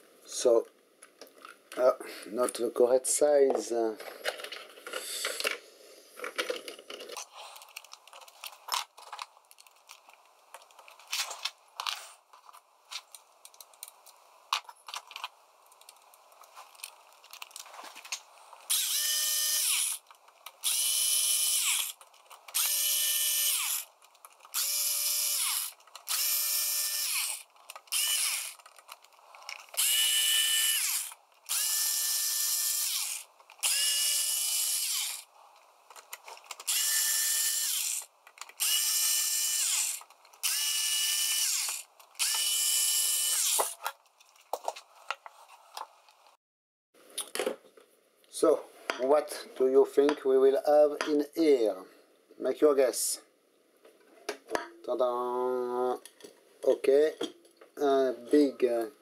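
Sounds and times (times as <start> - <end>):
electric screwdriver whining: 18.7 - 20.0, 20.6 - 23.9, 24.5 - 28.6, 29.8 - 35.3, 36.6 - 43.8.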